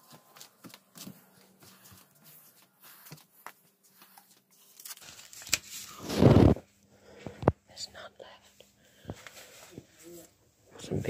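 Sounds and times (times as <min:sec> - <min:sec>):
soft footsteps: 0:00.0 - 0:04.7
camera handling rustle: 0:04.1 - 0:06.6.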